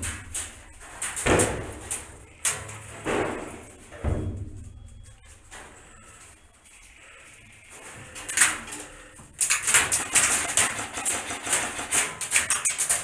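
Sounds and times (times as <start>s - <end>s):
airsoft gunfire in metal container: 9.6s - 13.0s.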